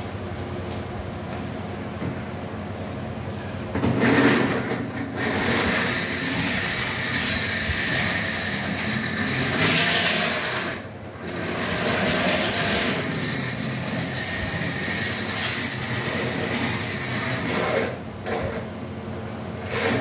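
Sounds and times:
model train wheels on rails: 4.0 - 18.0
model train motor running: 5.2 - 18.0.

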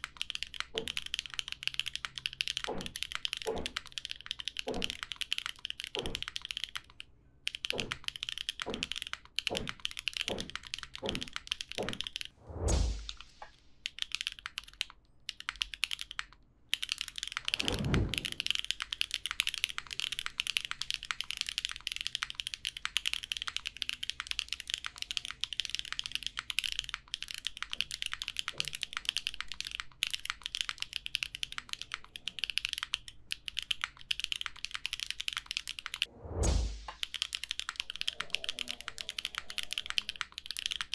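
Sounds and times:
mechanical keyboard typing: 0.0 - 12.3, 13.0 - 36.1, 36.9 - 40.9
low falling whoosh: 12.4 - 13.2, 36.1 - 37.0.

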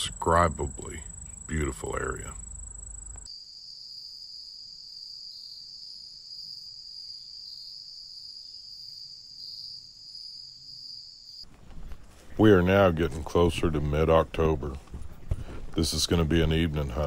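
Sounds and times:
insects trilling: 0.0 - 11.4.

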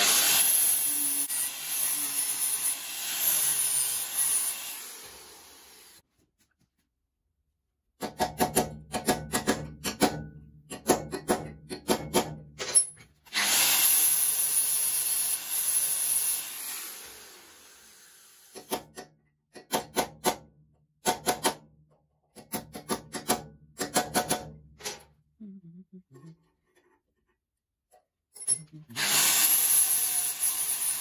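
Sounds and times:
power tool running: 0.0 - 6.0, 13.3 - 18.7, 29.0 - 31.0.

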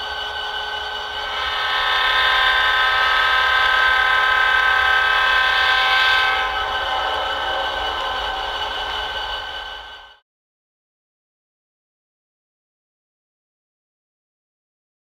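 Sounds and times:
locomotive air horn chord: 0.0 - 10.2.

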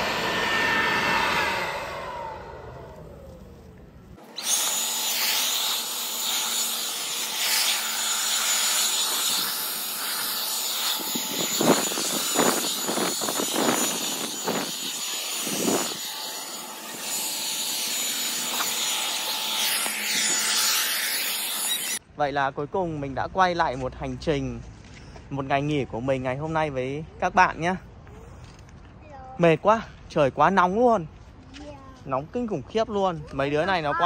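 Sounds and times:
leaf blower running: 0.0 - 22.0.

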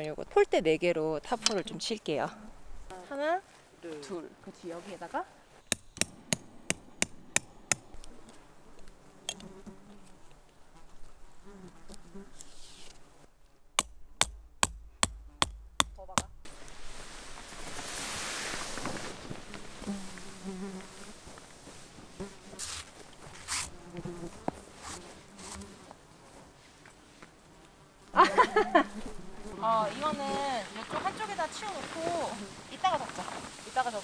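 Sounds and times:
hammer striking tent peg: 5.6 - 8.0, 13.8 - 16.4
flies buzzing: 5.6 - 13.2, 18.8 - 33.8
tarp fabric rustling: 16.6 - 23.7, 29.1 - 34.0.

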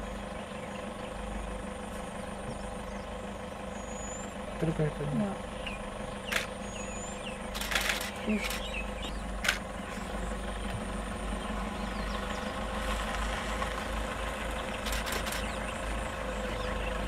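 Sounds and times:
car engine idling: 0.0 - 17.0
quick clicks: 6.3 - 6.5, 7.5 - 8.7.

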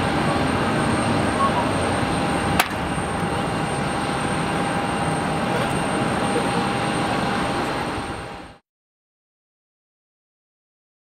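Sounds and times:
jet engine noise: 0.0 - 8.6.

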